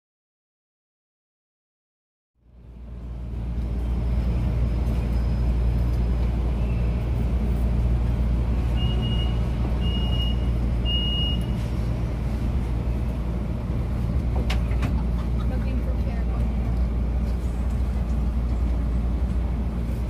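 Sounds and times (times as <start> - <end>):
train car rumble: 2.4 - 20.0.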